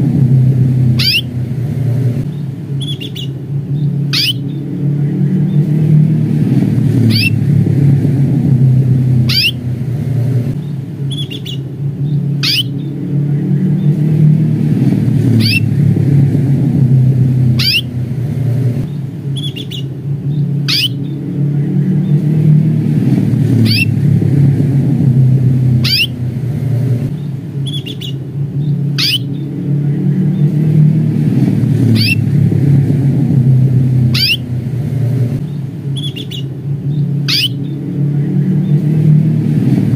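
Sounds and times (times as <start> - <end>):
steady low rumble: 0.0 - 39.9
canary chirping: 1.0 - 1.4, 2.3 - 4.7, 7.0 - 7.4, 9.2 - 9.7, 10.6 - 13.0, 15.3 - 15.7, 17.5 - 18.0, 18.9 - 21.2, 23.6 - 24.0, 25.8 - 26.2, 27.2 - 29.5, 31.8 - 32.3, 34.1 - 34.6, 35.4 - 37.8.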